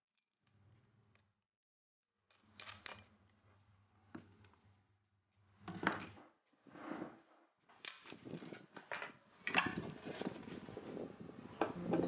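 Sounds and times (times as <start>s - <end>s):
wood scraping over a table: 5.7s - 7.4s, 9.7s - 11.0s
wood pieces knocking and clicking: 7.8s - 10.0s.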